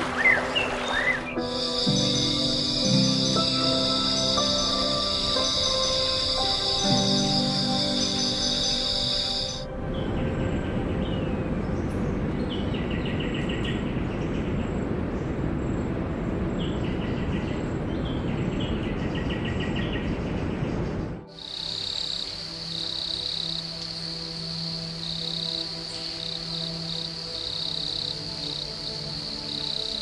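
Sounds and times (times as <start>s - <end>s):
soft music: 0.0s - 30.0s
insect chirring: 1.5s - 9.6s, 21.3s - 30.0s.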